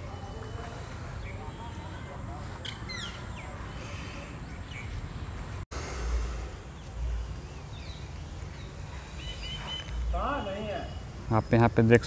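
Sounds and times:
birds chirping: 0.0s - 12.0s
steady low rumble: 4.9s - 8.4s.

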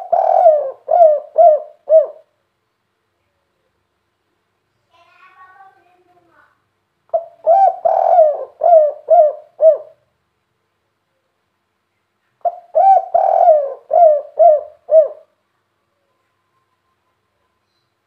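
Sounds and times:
dove cooing: 0.0s - 2.3s, 7.1s - 10.0s, 12.4s - 15.4s.

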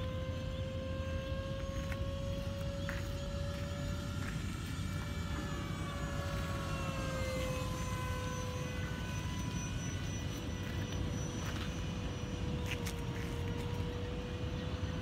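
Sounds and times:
model jet fans whining overhead: 0.0s - 15.0s.

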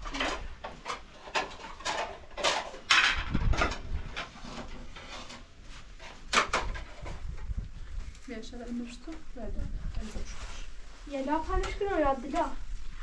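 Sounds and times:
plates and dishes clattering: 0.0s - 5.4s.

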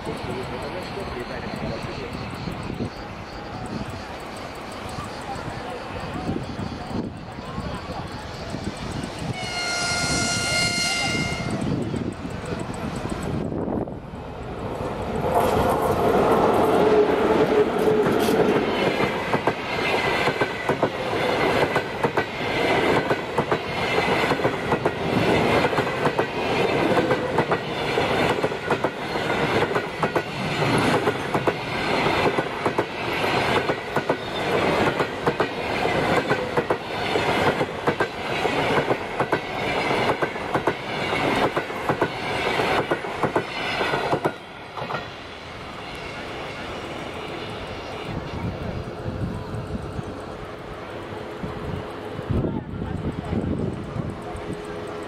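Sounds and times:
electric locomotive hum: 0.0s - 55.0s
train wheels knocking on rail joints: 17.4s - 45.1s.

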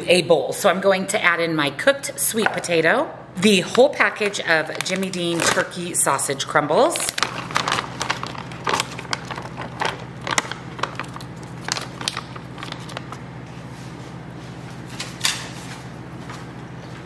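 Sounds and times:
plastic pouch crinkling: 4.2s - 5.9s, 6.8s - 13.2s
crumbles pattering into bowl: 7.0s - 13.2s.

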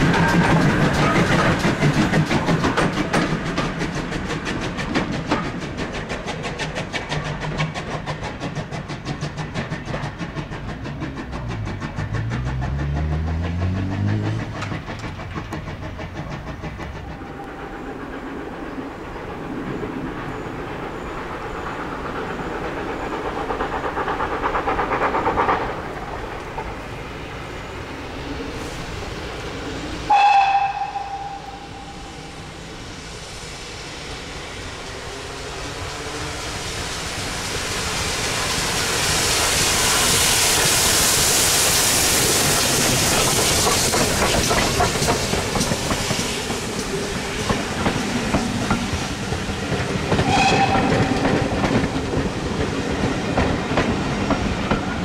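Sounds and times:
train wheels clacking on rail joints: 0.0s - 32.7s, 34.7s - 55.0s
hiss of steam: 0.0s - 55.0s
steam locomotive whistle: 30.1s - 32.6s, 50.2s - 51.6s.

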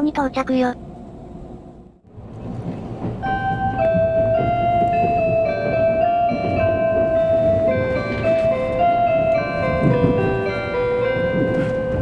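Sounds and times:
electronic chime melody: 3.2s - 12.0s.

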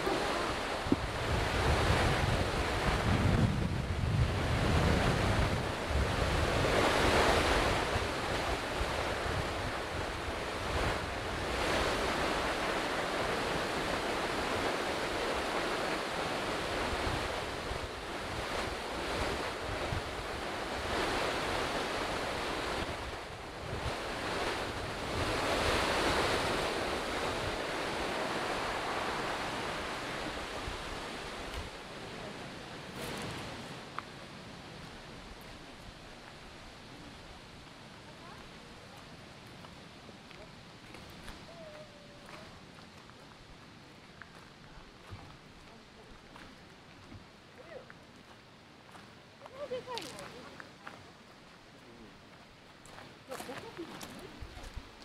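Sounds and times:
waterfall rushing: 0.0s - 3.1s, 4.3s - 33.8s
wind rumbling on microphone: 0.0s - 55.0s.

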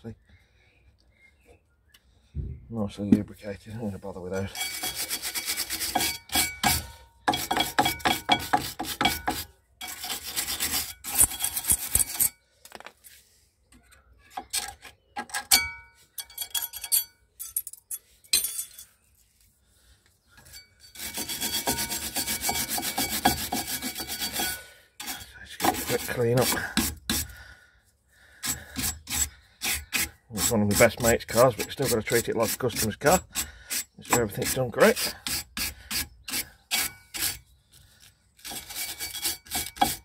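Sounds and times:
wire brush scrubbing metal: 4.3s - 12.3s, 20.4s - 27.3s, 28.4s - 37.4s, 38.4s - 40.0s
metal tools clinking: 15.3s - 19.0s.

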